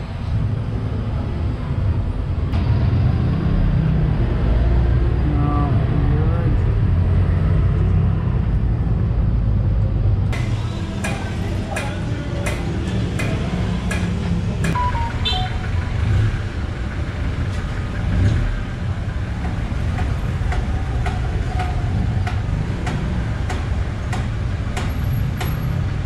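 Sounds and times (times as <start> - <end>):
street traffic rumble: 0.0 - 26.0.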